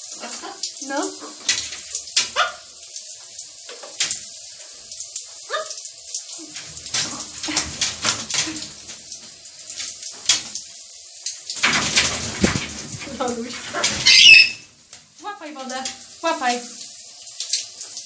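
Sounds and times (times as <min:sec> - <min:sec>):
shower water spattering: 0:00.0 - 0:18.0
parrot calls: 0:02.4 - 0:02.6, 0:13.8 - 0:14.7
bird wings flapping: 0:11.6 - 0:14.6.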